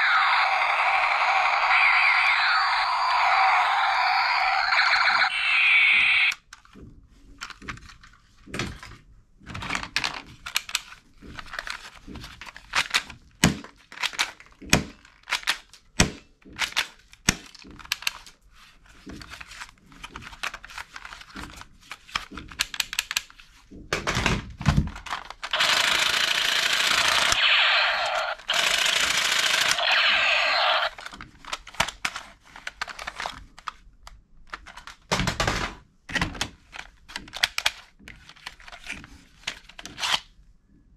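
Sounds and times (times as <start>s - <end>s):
toy gun electronic firing sound: 0.0s - 6.4s, 25.5s - 31.0s
plastic toys clattering: 19.2s - 25.5s, 30.9s - 33.8s, 34.5s - 40.2s.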